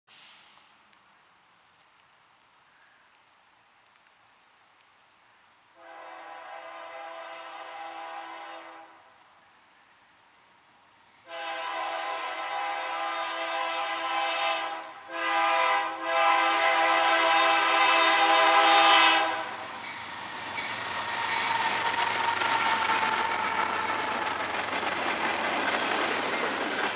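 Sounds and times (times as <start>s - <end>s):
locomotive air horn blasts: 5.8s - 9.0s, 11.2s - 19.7s
diesel locomotives passing rumble: 5.8s - 26.9s
train wheel noise: 15.2s - 26.9s.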